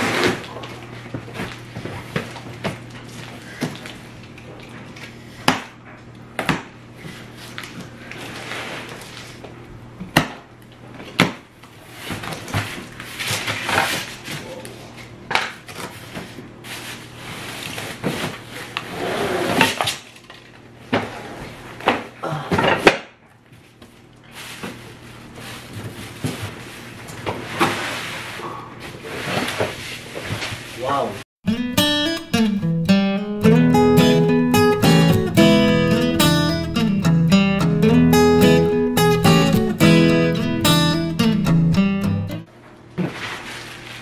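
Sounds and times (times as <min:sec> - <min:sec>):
cardboard scraping and ripping: 0:00.0 - 0:00.8, 0:07.5 - 0:09.4, 0:11.8 - 0:14.4, 0:15.8 - 0:20.0, 0:24.3 - 0:30.8, 0:43.0 - 0:44.0.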